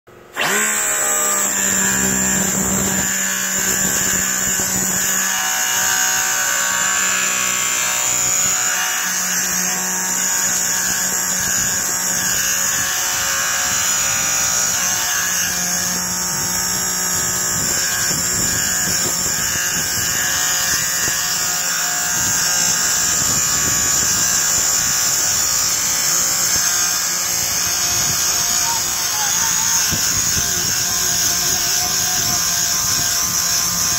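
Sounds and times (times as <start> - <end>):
low hum: 0.4 - 5.2.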